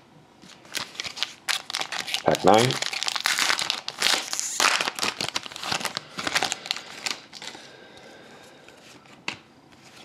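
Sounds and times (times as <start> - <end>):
foil wrapper crinkling and tearing: 0.5 - 7.6.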